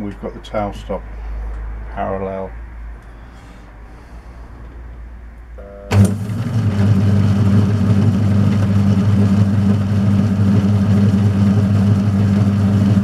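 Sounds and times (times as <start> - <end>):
lathe motor humming: 5.9 - 13.0.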